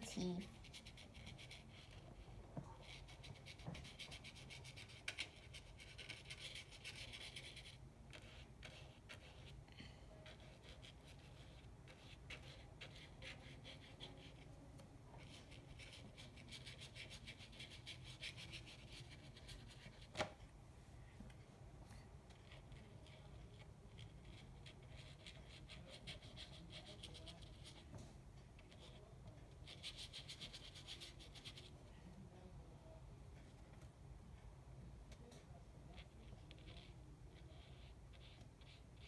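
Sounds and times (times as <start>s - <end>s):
paintbrush scratching on paper: 0.0s - 20.5s, 22.0s - 33.0s, 35.6s - 39.0s.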